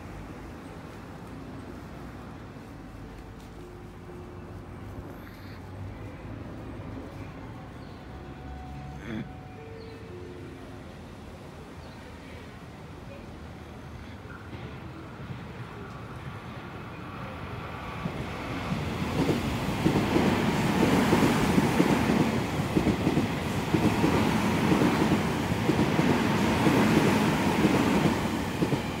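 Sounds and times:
train wheels rumbling on rails: 17.2 - 29.0.

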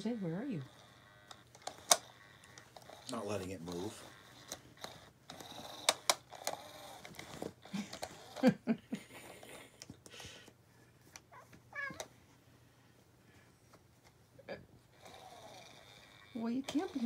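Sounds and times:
motorised cat toy clicking: 0.5 - 8.4, 15.0 - 17.0
cat chirping: 11.3 - 12.1.

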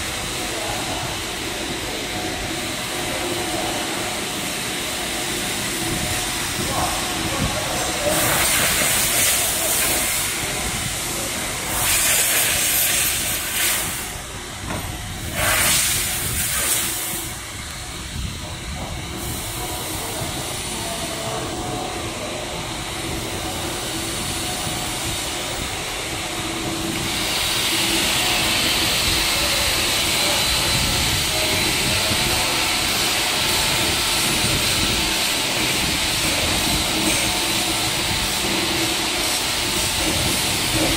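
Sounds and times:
loud hissing bursts: 0.0 - 21.9
steady mechanical rumble: 0.0 - 40.9
steady hiss: 0.3 - 14.4, 15.1 - 21.5.

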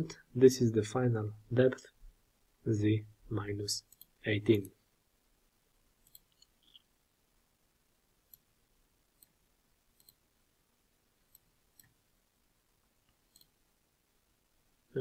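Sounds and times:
faint computer mouse clicks: 6.0 - 6.9, 8.3 - 8.5, 10.0 - 10.2, 13.0 - 13.6.

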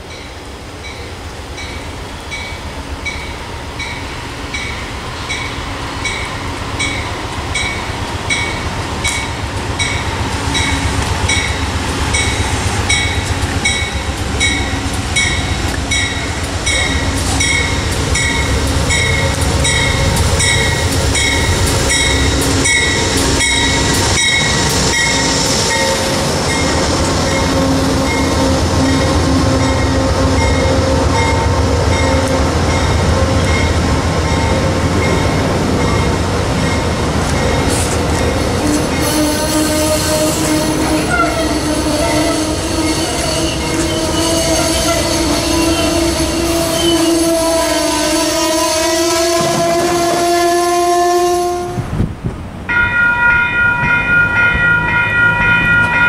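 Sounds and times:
train bell ringing: 0.0 - 39.0, 52.7 - 56.0
train passing rumble: 0.0 - 56.0.

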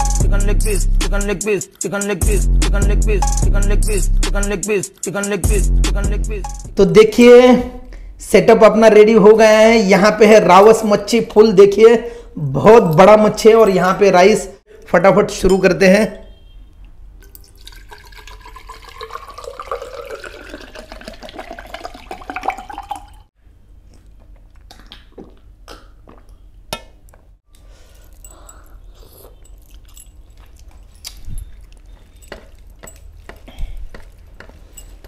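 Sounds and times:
water poured into a glass: 17.2 - 23.3
hand mixing rice and curry: 28.8 - 35.0.

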